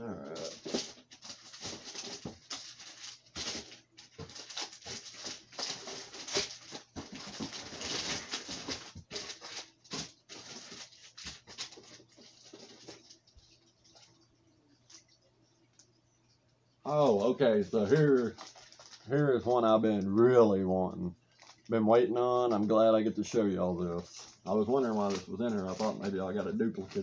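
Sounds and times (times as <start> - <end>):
packaging rustling and crinkling: 0.3 - 14.2, 17.0 - 20.1, 21.3 - 21.7, 24.0 - 27.0.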